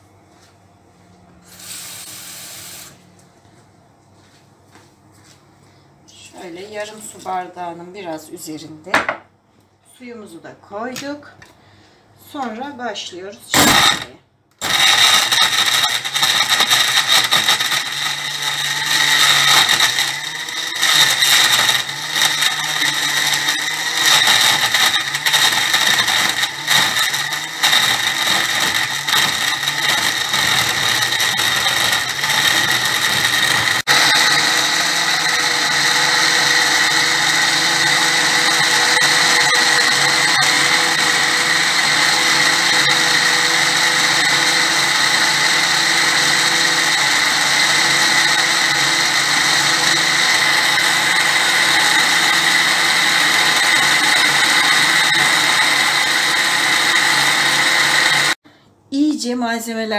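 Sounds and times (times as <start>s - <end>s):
blender crushing frozen fruit: 13.6s - 58.4s.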